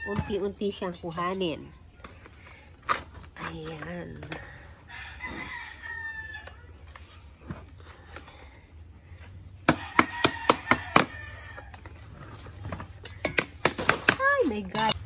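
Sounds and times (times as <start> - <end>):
rooster crowing: 4.9 - 6.6, 9.7 - 11.8
sharp knocks of plastic pails: 12.8 - 14.6.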